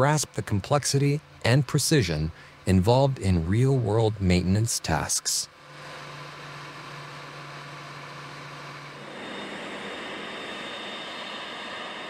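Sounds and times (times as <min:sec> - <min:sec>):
low hum: 0:05.5 - 0:12.0
jet engine rush with whine: 0:05.6 - 0:12.0.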